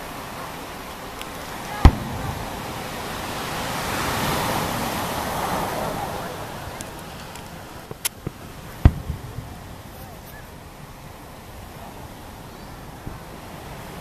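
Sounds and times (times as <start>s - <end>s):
surf breaking on beach: 0.0s - 14.0s
firework bang: 1.7s - 5.7s, 8.0s - 10.4s.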